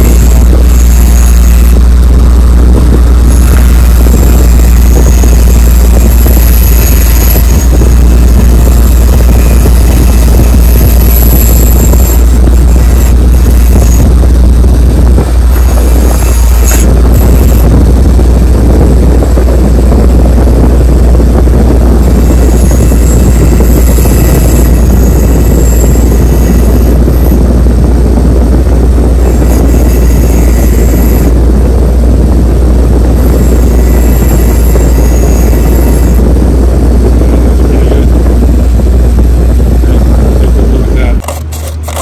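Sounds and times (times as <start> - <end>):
wire wheel motor humming: 0.0 - 42.0
metal scratching against wire bristles: 41.2 - 42.0.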